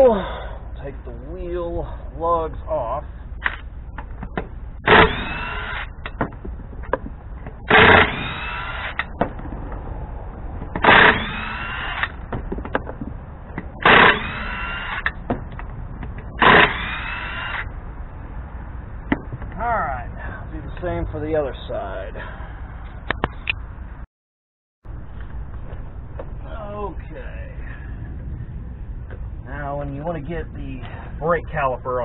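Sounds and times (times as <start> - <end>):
impact wrench hammering whine: 3.4 - 9.4, 10.6 - 17.8.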